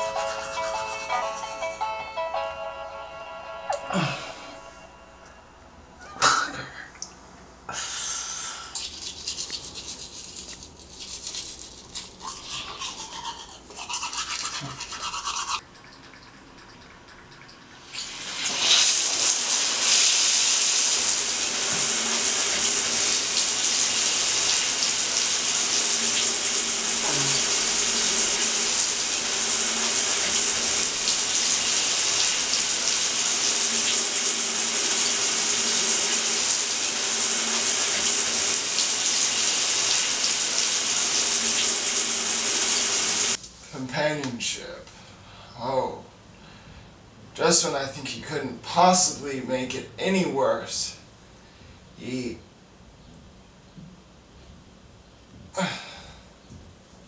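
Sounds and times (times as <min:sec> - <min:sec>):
water running hard: 0:17.4 - 0:43.4.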